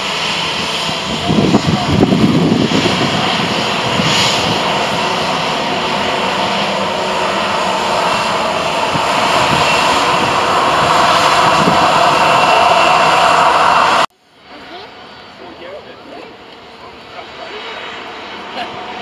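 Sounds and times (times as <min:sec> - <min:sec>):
jet engines taxiing: 0:00.0 - 0:19.0.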